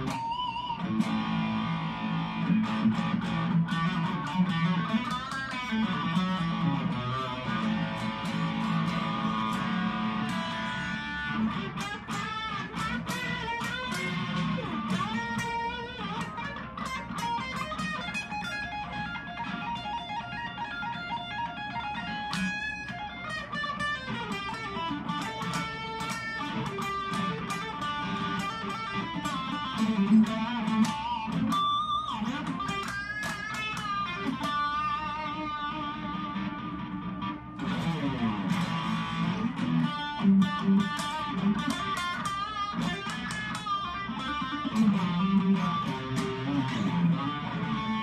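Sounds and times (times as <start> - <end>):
distorted electric guitar lead: 0.0 - 48.0.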